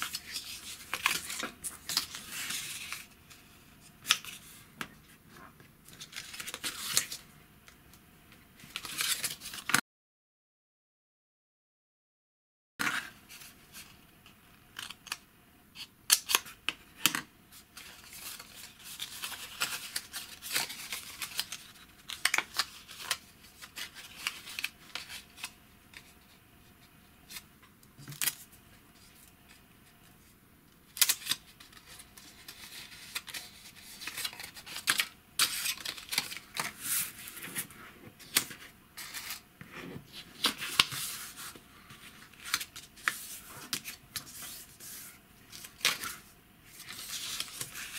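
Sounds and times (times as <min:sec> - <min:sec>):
paper crinkling and creasing: 0:00.0 - 0:04.6, 0:17.8 - 0:26.4, 0:30.9 - 0:47.9.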